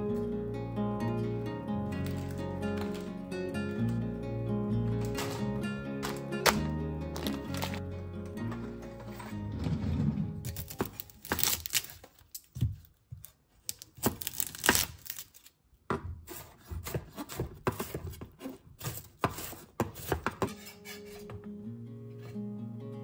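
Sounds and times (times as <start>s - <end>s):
knife slicing onion on wooden board: 15.9s - 21.4s.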